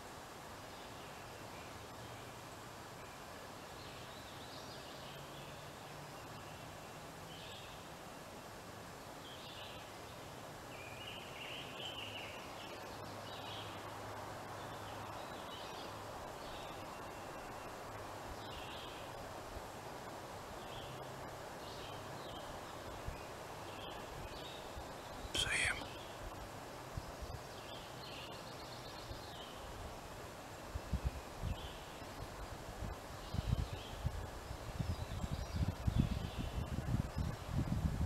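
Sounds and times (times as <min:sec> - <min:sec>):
steady background hiss: 0:00.0 - 0:38.0
small birds chirping: 0:20.6 - 0:29.8.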